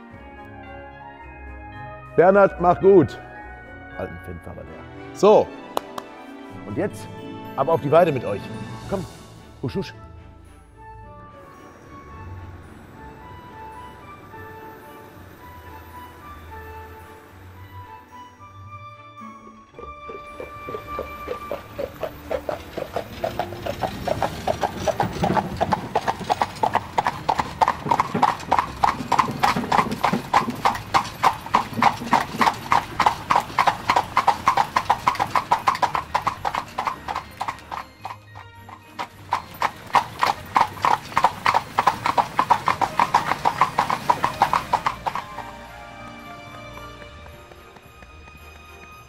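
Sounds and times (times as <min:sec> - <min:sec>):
horse hooves trotting on hard surface: 0:19.4 - 0:49.0.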